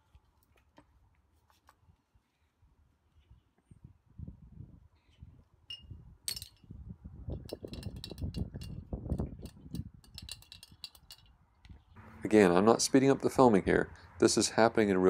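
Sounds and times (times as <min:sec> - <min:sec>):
metal hinge clinking into glass jar: 0:05.7 - 0:06.6, 0:07.5 - 0:11.3.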